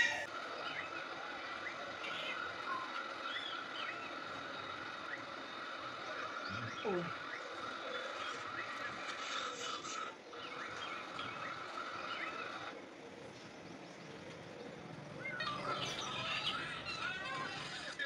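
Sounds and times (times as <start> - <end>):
voice-like sounds: 6.5 - 7.2.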